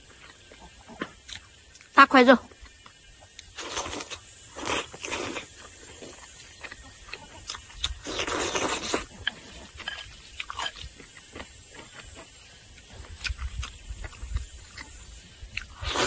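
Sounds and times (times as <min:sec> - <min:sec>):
chewing and smacking: 0:00.0 - 0:01.9, 0:02.6 - 0:16.0
slurping noodles: 0:03.6 - 0:06.1, 0:07.9 - 0:09.1, 0:15.6 - 0:16.0.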